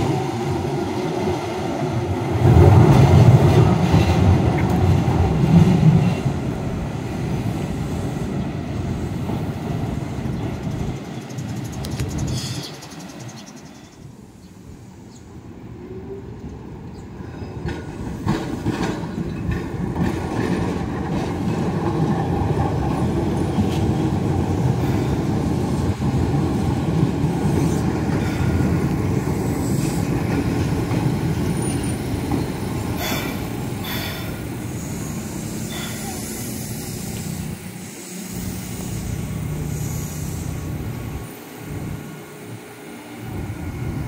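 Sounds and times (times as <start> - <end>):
tram rumbling past: 0.0 - 44.0
wheels clacking over rail joints: 17.5 - 37.7.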